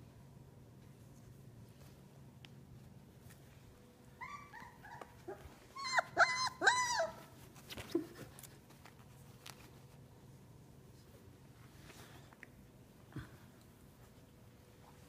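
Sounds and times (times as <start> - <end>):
puppy yelping: 4.2 - 7.4
puppy whimpering: 4.2 - 8.2.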